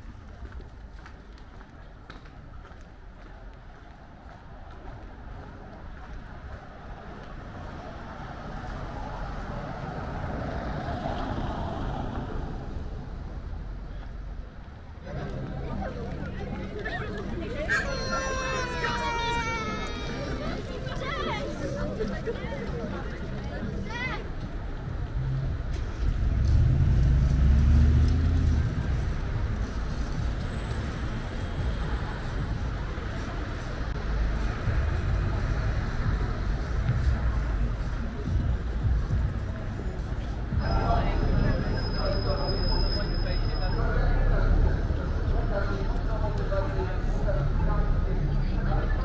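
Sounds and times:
city road traffic: 0.0 - 49.0
car driving over cobblestones: 24.8 - 41.8
vehicle engine passing: 25.9 - 30.0.

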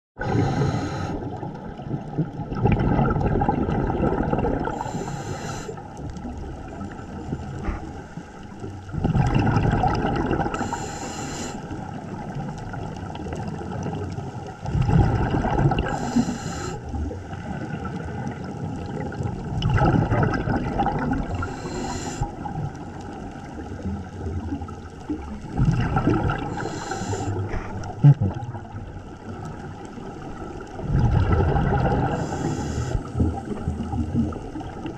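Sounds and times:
regulator inhale hiss: 0.2 - 1.4, 4.7 - 5.9, 10.5 - 11.9, 15.8 - 17.0, 21.3 - 22.5, 26.5 - 27.9, 32.1 - 33.6
diver exhaling bubbles underwater: 0.2 - 8.0, 8.6 - 34.9.

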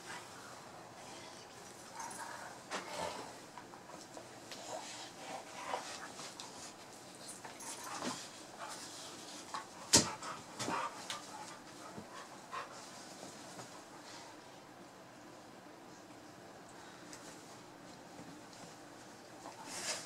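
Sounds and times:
dogs scuffling: 1.6 - 14.1
dogs panting: 1.7 - 14.4.

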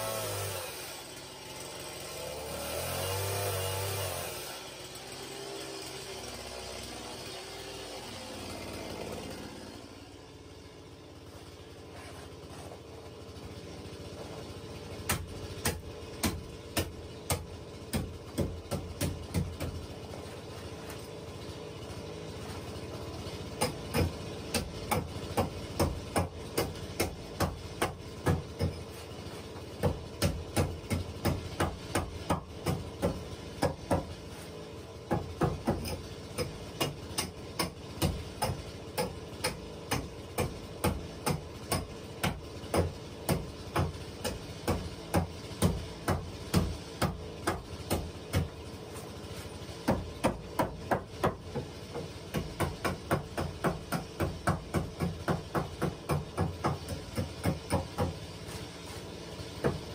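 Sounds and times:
hammer striking wooden planks: 15.0 - 20.2, 23.6 - 34.3, 35.0 - 49.1, 49.8 - 58.7, 59.6 - 59.9.

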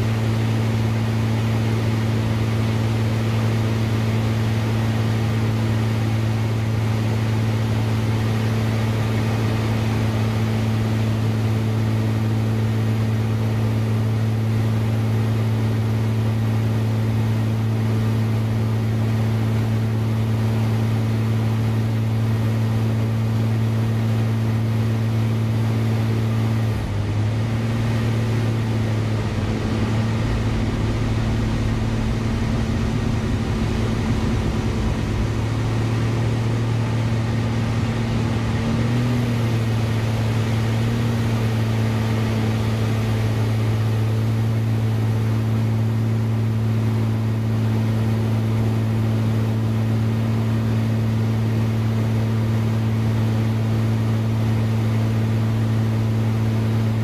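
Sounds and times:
propeller aircraft engine droning: 0.0 - 57.0
low rumble: 27.0 - 45.9.

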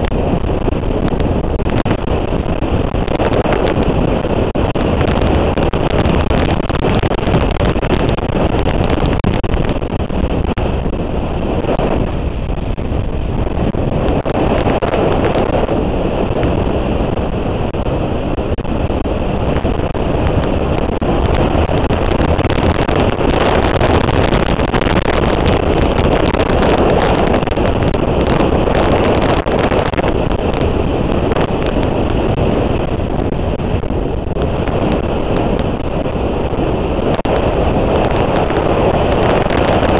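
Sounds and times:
road noise: 0.0 - 39.9
wind rushing over microphone: 0.0 - 39.9.

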